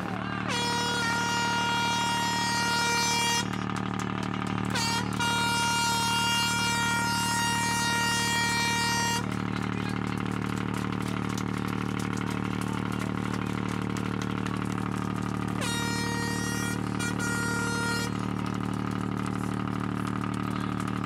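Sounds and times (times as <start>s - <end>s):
air horn blast: 0.0s - 9.5s, 14.7s - 18.7s
low engine drone: 0.0s - 21.0s.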